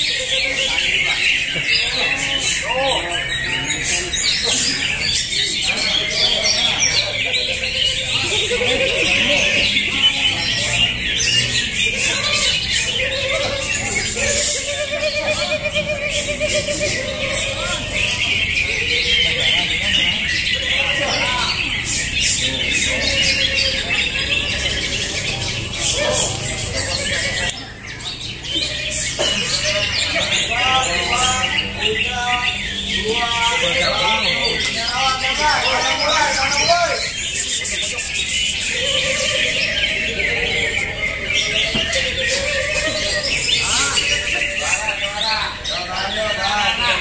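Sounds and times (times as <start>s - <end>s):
birds chirping and whistling: 0.0s - 47.0s
people's voices: 0.0s - 47.0s.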